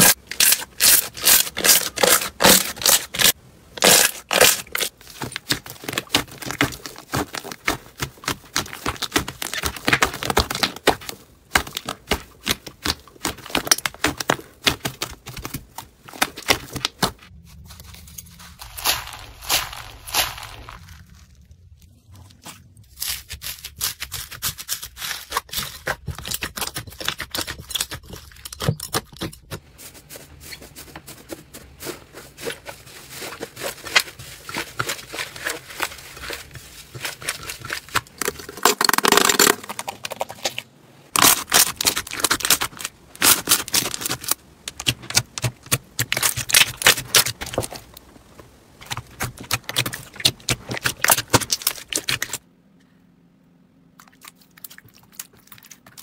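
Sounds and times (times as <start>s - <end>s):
faint low hum: 26.8s - 56.0s.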